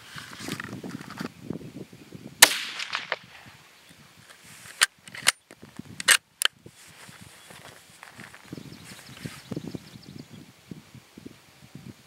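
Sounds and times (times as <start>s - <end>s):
rifle shot with echo: 2.4s - 3.5s.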